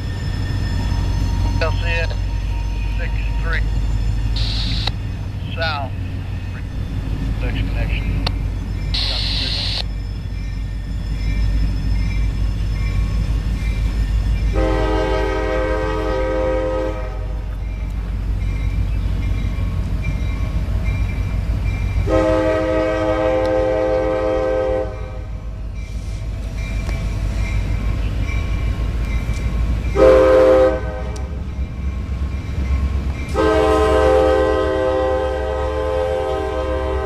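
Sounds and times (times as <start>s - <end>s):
train rumble: 0.0s - 37.0s
locomotive air horn blasts: 14.5s - 17.4s, 22.1s - 25.2s, 30.0s - 31.3s, 33.3s - 37.0s.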